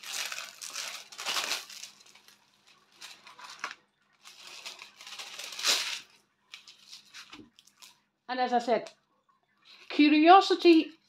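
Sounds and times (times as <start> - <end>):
canvas and plastic film crackling: 0.0 - 8.1.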